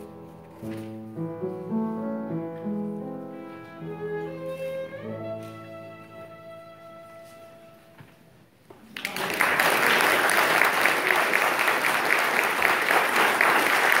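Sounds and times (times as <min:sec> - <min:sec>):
violin note: 0:03.4 - 0:08.2
audience applause: 0:08.8 - 0:14.0.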